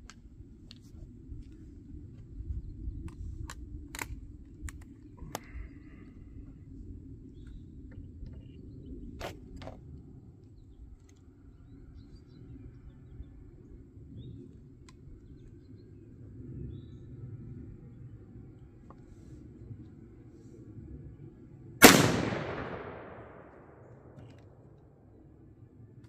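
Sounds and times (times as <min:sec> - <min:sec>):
metallic clicks of shotgun handling: 0:03.1 - 0:05.5, 0:21.8 - 0:24.5
low steady rumble: 0:16.9 - 0:25.7.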